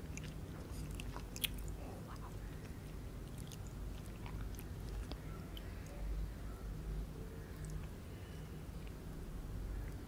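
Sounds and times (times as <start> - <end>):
crunchy chewing: 0.0 - 5.9.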